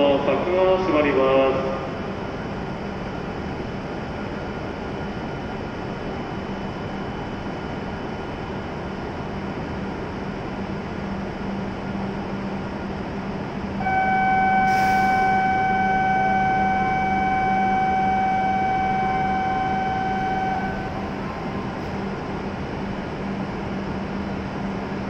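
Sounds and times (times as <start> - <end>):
train hum: 0.0 - 25.0
steady electronic tone: 13.8 - 22.5.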